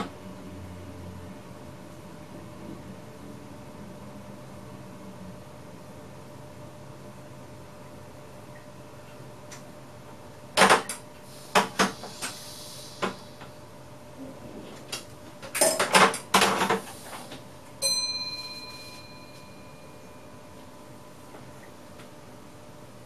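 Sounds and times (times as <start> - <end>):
bell-like ding: 17.8 - 20.6.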